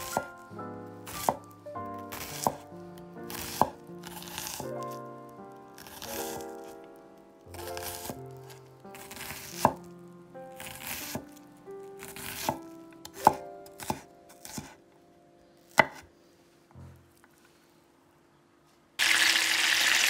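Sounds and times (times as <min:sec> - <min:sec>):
knife chopping onion: 0:00.0 - 0:00.4, 0:01.0 - 0:01.5, 0:02.1 - 0:05.0, 0:05.8 - 0:06.8, 0:07.5 - 0:09.9, 0:10.6 - 0:11.4, 0:12.0 - 0:14.8, 0:15.7 - 0:16.1.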